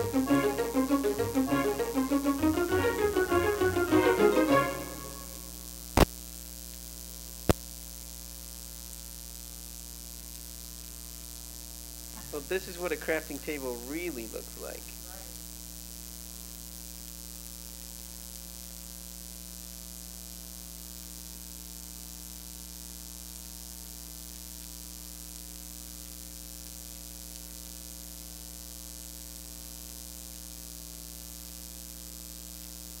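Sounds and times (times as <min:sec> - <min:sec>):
constant hiss: 0:00.0 - 0:19.7
electrical mains hum: 0:12.0 - 0:15.7.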